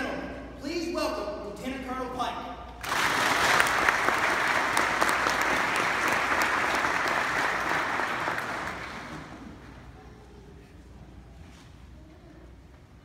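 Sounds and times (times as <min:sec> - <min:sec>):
audience applauding: 0:02.8 - 0:09.6.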